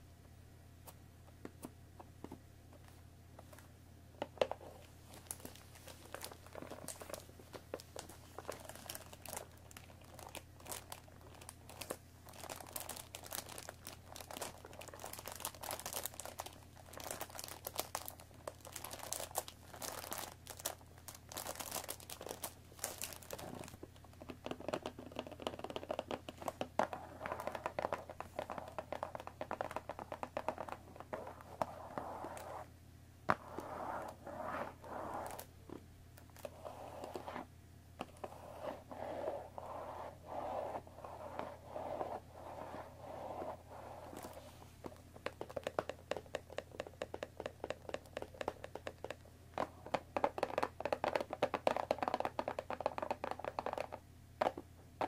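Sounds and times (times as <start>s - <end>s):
plastic crinkling: 5.1s - 23.8s.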